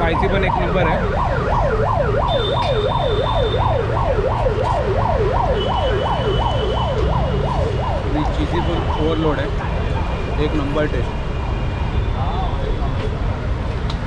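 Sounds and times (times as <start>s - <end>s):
emergency siren wailing: 0.0s - 11.1s
road traffic rumble: 0.0s - 14.0s.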